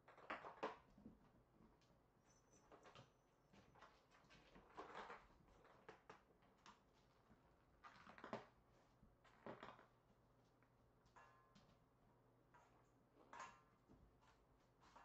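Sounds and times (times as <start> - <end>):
kittens rustling and tapping: 2.7 - 11.9, 12.5 - 15.0.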